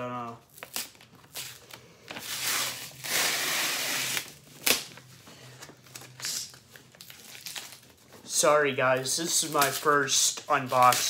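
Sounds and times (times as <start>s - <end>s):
packing tape ripping: 0.5s - 5.0s, 10.6s - 11.0s.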